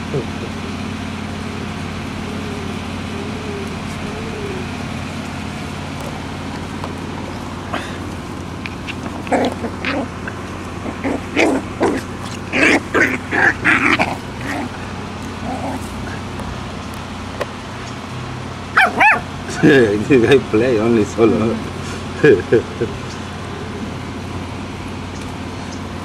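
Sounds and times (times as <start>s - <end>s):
puppies yipping and barking: 0.0s - 19.8s
steady low hum: 0.0s - 26.0s
puppies whimpering: 1.6s - 5.2s, 6.0s - 16.4s.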